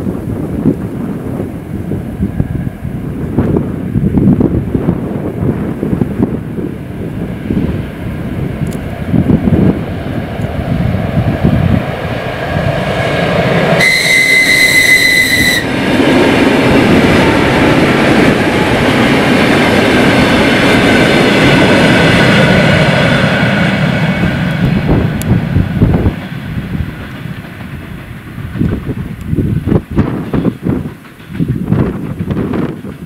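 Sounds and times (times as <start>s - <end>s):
train cars rumbling past: 0.0s - 33.0s
train motor whine: 13.4s - 26.1s
train whistle: 13.8s - 15.8s.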